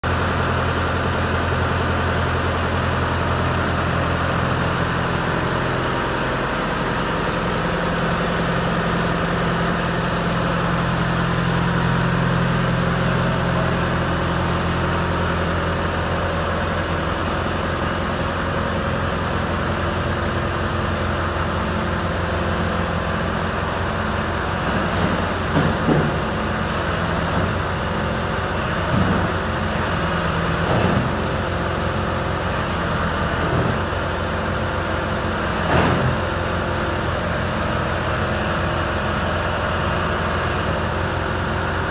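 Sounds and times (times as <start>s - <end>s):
tractor diesel engine idling: 0.0s - 41.9s.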